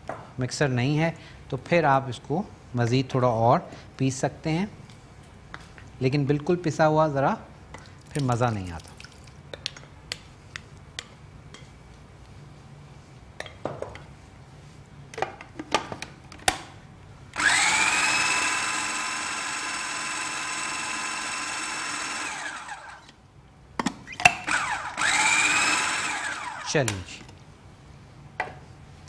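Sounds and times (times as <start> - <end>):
food processor motor grinding: 17.4 - 23.1, 24.4 - 26.8.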